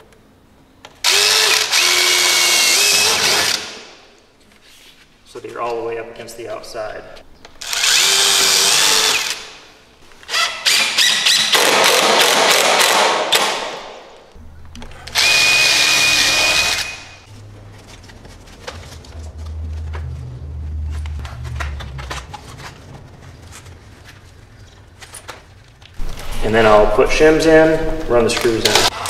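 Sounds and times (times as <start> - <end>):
cordless driver driving screws: 15.1 - 17.0.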